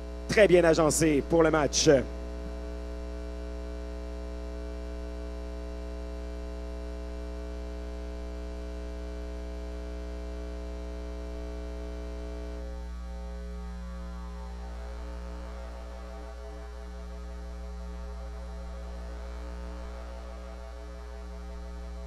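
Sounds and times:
electrical mains hum: 0.0s - 22.0s
faint wavering sound: 12.9s - 22.0s.

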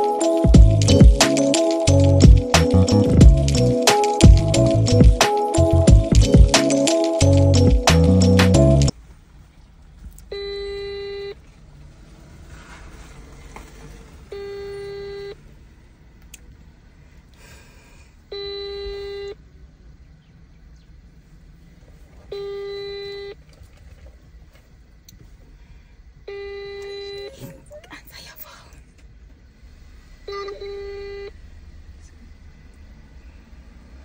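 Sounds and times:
phone ringback tone: 14.3s - 15.4s.

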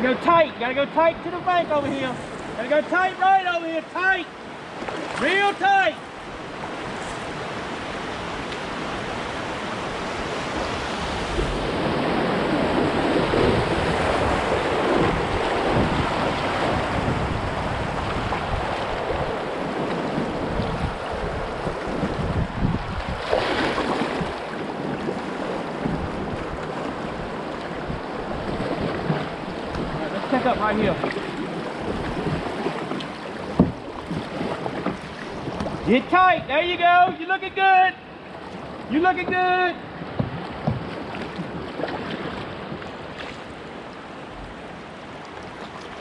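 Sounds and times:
paddle splashes: 0.0s - 46.0s
rushing river water: 0.0s - 46.0s.

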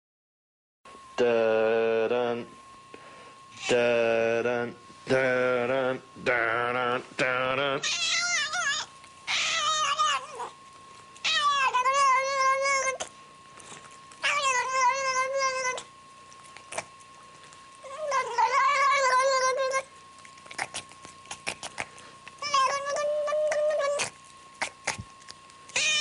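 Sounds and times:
cat yowling: 7.8s - 10.6s, 11.2s - 13.1s, 14.2s - 15.9s, 17.8s - 21.8s, 22.4s - 24.8s, 25.7s - 26.0s.

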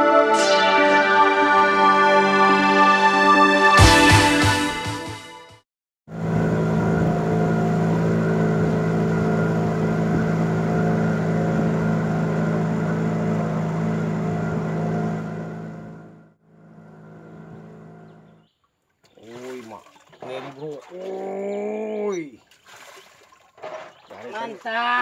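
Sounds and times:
boat engine humming: 6.1s - 25.0s.

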